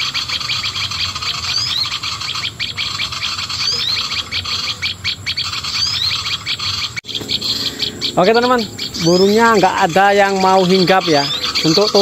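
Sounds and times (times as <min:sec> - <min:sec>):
fast chattering bird calls: 0:00.0 - 0:12.0.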